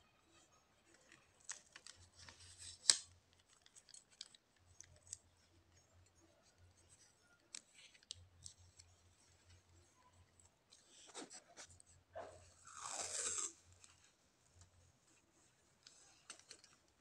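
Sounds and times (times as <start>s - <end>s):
tape crackle: 0.9s - 5.9s, 12.6s - 14.0s.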